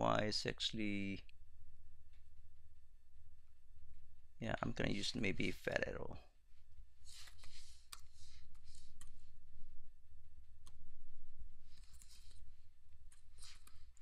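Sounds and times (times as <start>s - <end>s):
low steady hum: 0.0s - 14.0s
computer keyboard typing: 11.7s - 12.4s.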